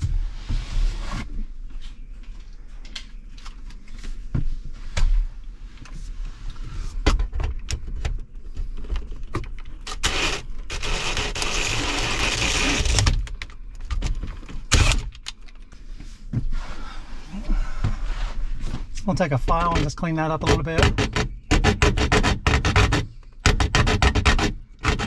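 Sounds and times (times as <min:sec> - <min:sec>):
drill boring through plastic: 0:10.0 - 0:13.1.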